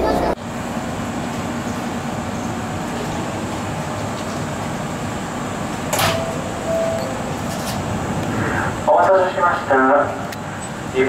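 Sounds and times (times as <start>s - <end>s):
electric train equipment running: 0.0s - 8.3s
short high tone: 6.1s - 7.4s.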